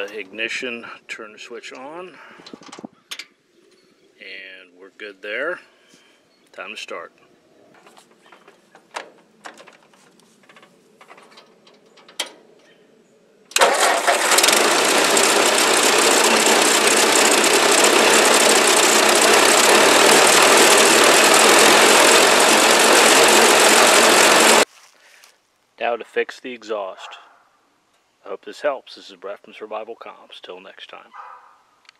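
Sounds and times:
tractor engine running: 13.6 - 24.6.

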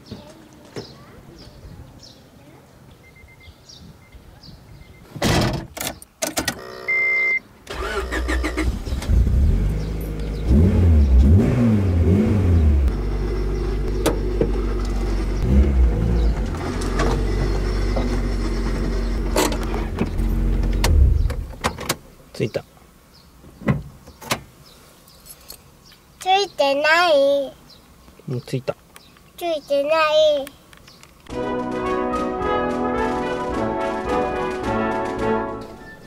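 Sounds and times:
short electronic beep: 6.6 - 7.4, 35.7 - 36.0
car engine starting and revving: 7.7 - 21.7.

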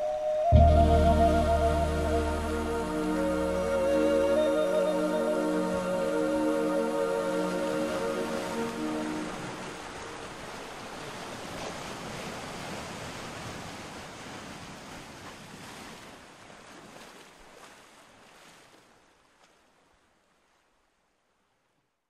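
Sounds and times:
rushing water hiss: 0.0 - 12.6.

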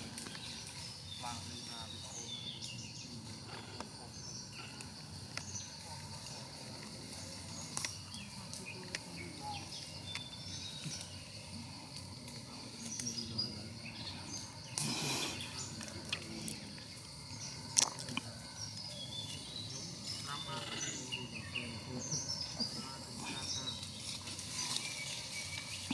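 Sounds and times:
birds chirping: 0.0 - 25.9.

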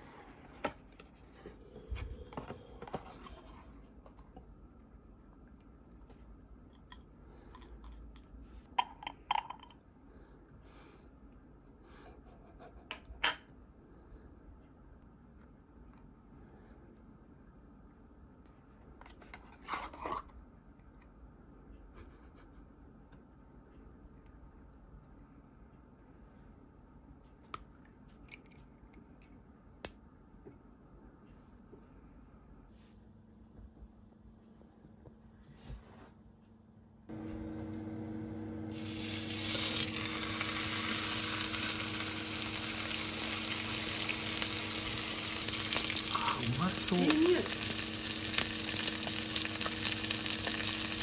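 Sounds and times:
low even hum: 0.0 - 51.0
steak sizzling in a frying pan: 38.7 - 51.0.

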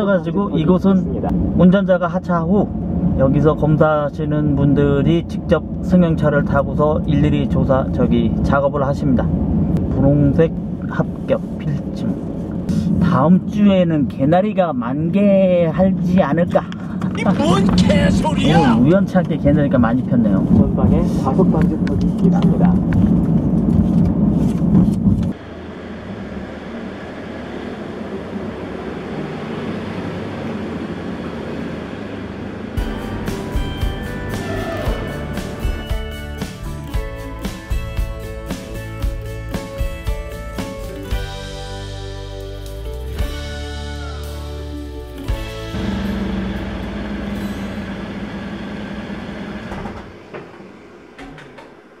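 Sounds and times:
car cabin road rumble: 0.0 - 14.3, 15.1 - 37.0
car rolling slowly hum: 15.6 - 41.2, 45.4 - 52.0
low hum: 45.3 - 52.0.

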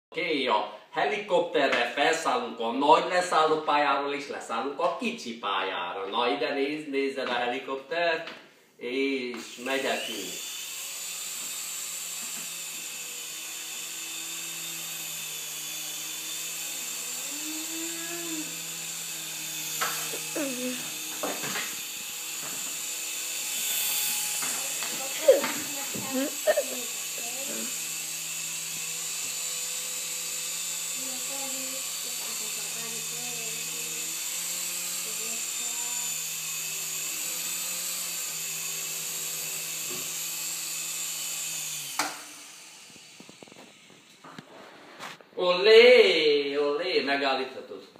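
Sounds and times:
toy helicopter whine: 9.6 - 44.3.

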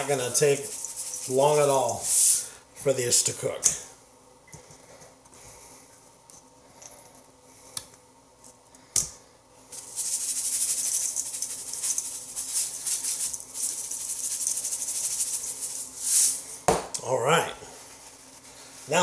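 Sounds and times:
seasoning shaker rattling: 0.0 - 2.4, 9.7 - 16.5.

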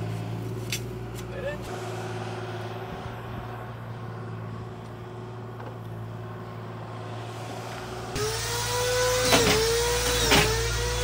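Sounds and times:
screw gun whining: 8.2 - 11.0.

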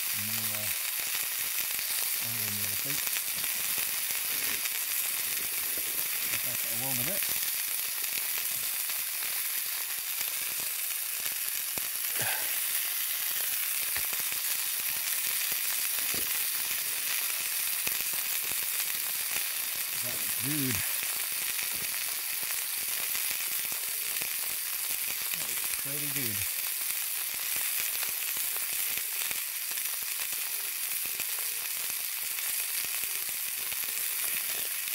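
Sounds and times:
steaks sizzling in a frying pan: 0.0 - 34.9
short voice sounds: 20.0 - 20.9.

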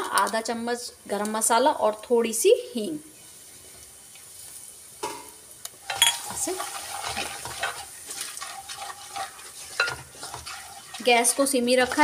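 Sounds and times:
spices sizzling in hot oil: 0.0 - 12.0
spatula scraping pan: 5.9 - 12.0.

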